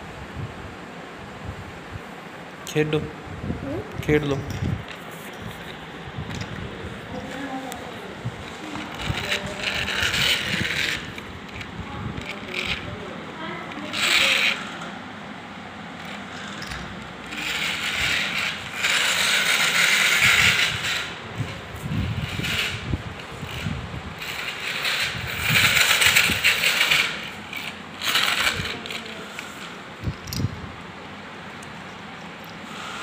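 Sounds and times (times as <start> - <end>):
toy car wheels whirring on tiles: 8.4 - 13.0, 13.6 - 14.9, 16.0 - 30.5.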